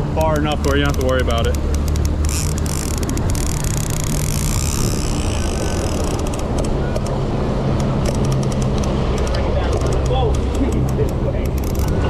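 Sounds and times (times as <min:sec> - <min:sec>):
boat engine running: 0:00.0 - 0:12.0
wind and water rushing: 0:00.0 - 0:12.0
sharp rapid clicks: 0:00.2 - 0:07.1.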